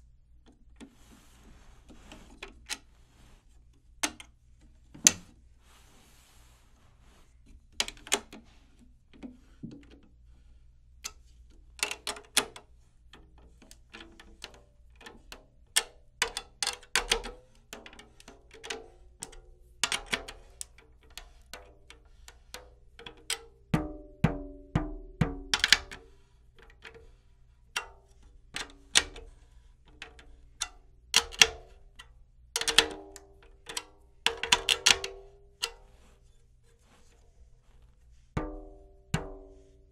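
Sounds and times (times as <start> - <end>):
taps on drum head: 23.7 - 26.0, 38.4 - 39.7.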